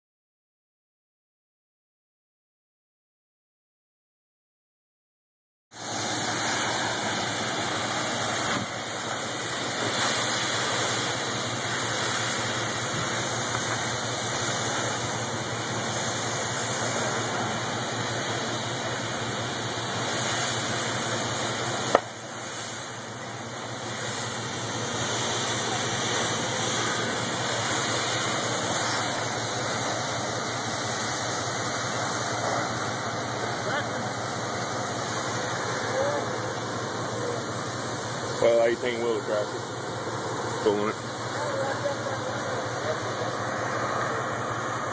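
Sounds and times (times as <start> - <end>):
steady hiss: 5.8 - 44.9
vehicle engine idling: 5.8 - 44.9.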